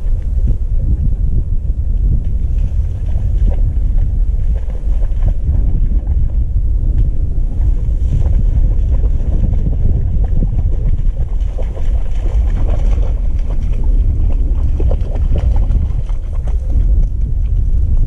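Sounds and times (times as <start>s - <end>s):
wind buffeting microphone: 0.0s - 18.0s
splashes in shallow water: 8.1s - 17.0s.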